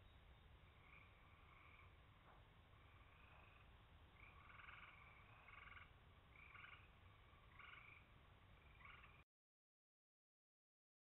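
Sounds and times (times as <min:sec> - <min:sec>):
faint frog trilling calls: 0:00.0 - 0:09.2.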